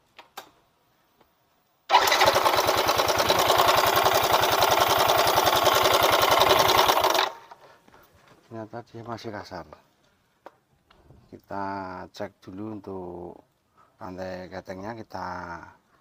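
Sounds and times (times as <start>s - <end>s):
scooter engine starting rough: 1.9s - 7.6s.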